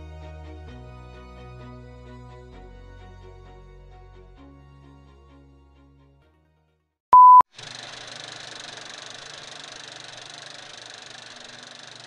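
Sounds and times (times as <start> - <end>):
soft music: 0.0 - 6.3
brief beep: 7.2 - 7.4.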